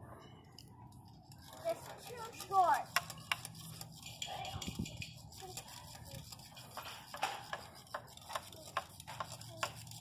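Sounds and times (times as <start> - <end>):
faint children's voices: 0.0 - 10.0
hammers tapping on wooden posts: 6.8 - 9.8.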